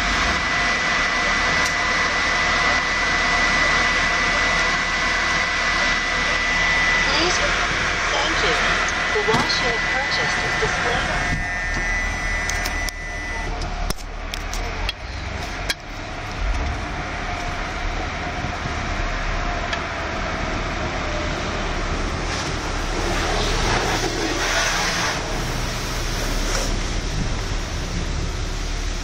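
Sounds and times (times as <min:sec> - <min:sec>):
car wash machinery hum: 0:00.0 - 0:29.0
water spraying over car: 0:20.4 - 0:29.0.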